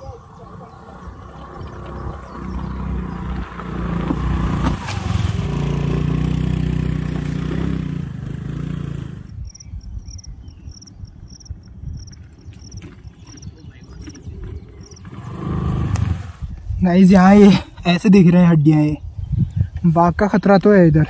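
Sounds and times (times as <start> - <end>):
scooter engine running: 0.0 - 9.4
insect chirping: 9.3 - 15.5.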